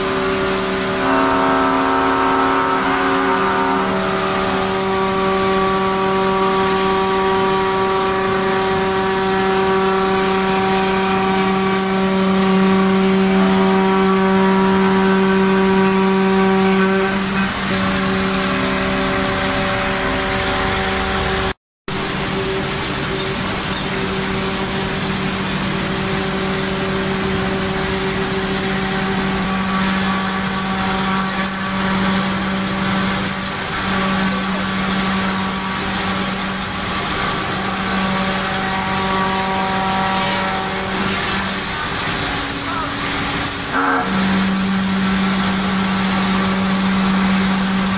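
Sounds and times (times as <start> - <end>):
router bit cutting wood hiss: 0.0 - 20.8, 23.8 - 47.9
router spindle humming: 23.9 - 47.9.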